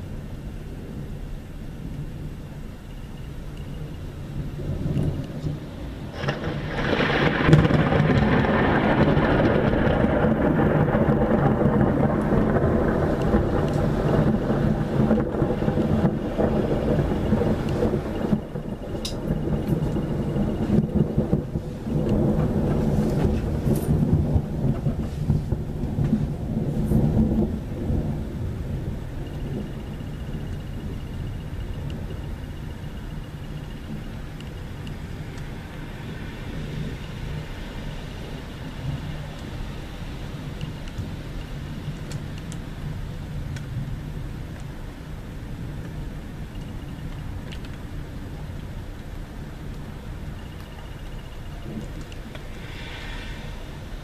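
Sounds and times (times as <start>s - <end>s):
rolling thunder rumble: 0.0s - 54.0s
thunder clap: 4.4s - 42.2s, 49.7s - 54.0s.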